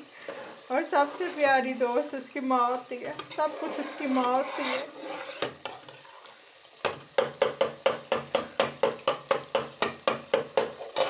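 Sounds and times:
spoon knocking against steel pan: 6.8 - 10.8.

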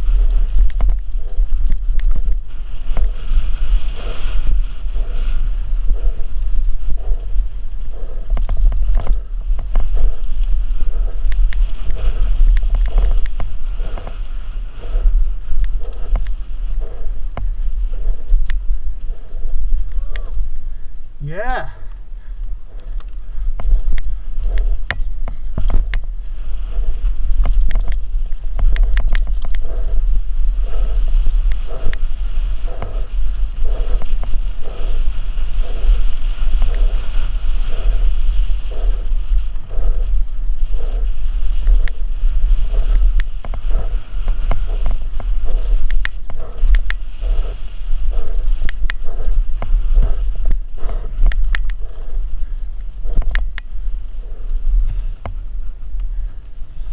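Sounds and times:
bike clicks and rattles: 0.0 - 20.6, 22.3 - 55.4
even pulse: 0.0 - 56.9
wind buffeting camera: 0.0 - 56.9.

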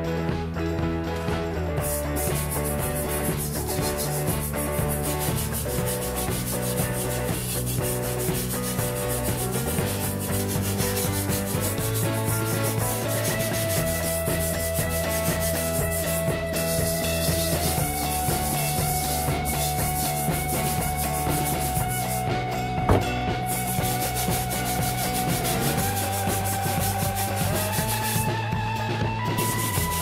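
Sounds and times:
wire brush scrubbing metal: 1.8 - 22.3, 22.9 - 28.3.

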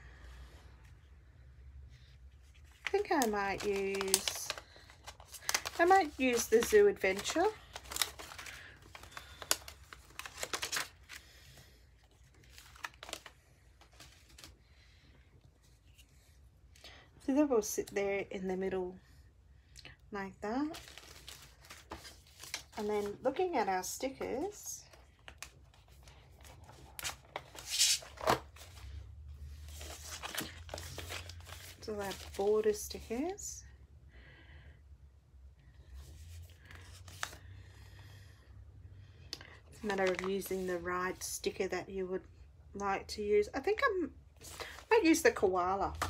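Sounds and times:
cardstock pieces rustling and clicking: 2.6 - 11.2, 29.8 - 32.4, 39.8 - 40.5.

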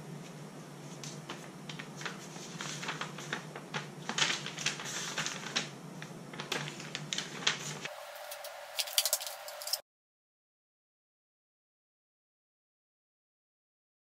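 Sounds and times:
steady low hum: 0.0 - 9.8
paper rustling and crackling: 0.8 - 9.8.

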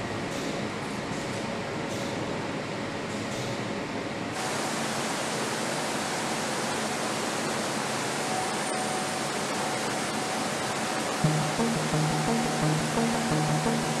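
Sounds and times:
factory background hiss: 1.8 - 12.0.

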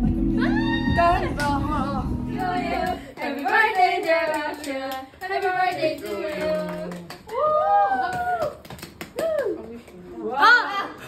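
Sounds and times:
background music with bass: 0.0 - 3.0
young women singing together: 0.4 - 7.2.

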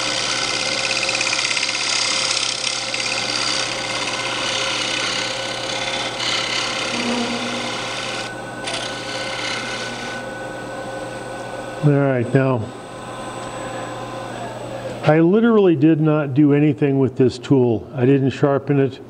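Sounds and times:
scraper shaving spinning wood: 0.0 - 10.2
lathe motor hum: 0.0 - 13.5.

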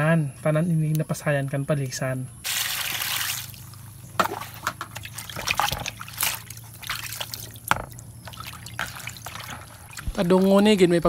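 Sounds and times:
water dripping from a colander: 2.5 - 11.0
water splashing in a basin: 2.5 - 11.0.

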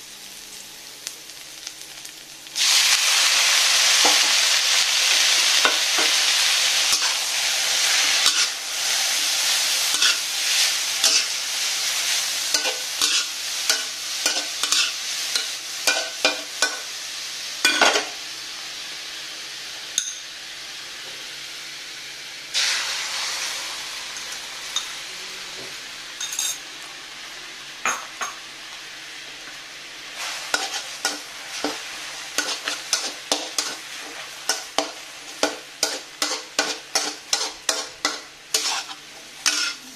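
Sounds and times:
food sizzling in hot oil: 0.0 - 39.9
utensil scraping a pan: 12.5 - 14.9, 30.2 - 31.8, 32.4 - 39.9.

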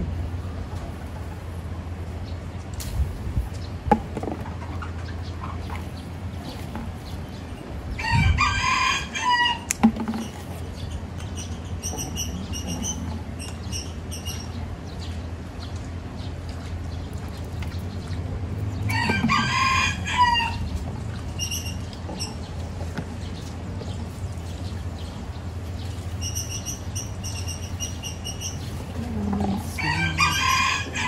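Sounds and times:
rooster crowing: 8.0 - 9.7, 18.9 - 20.6, 29.8 - 31.0.

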